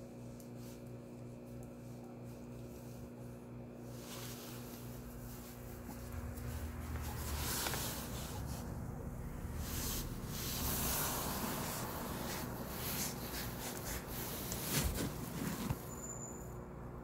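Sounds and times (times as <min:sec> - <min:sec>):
fingers rubbing on phone: 0:12.0 - 0:16.0.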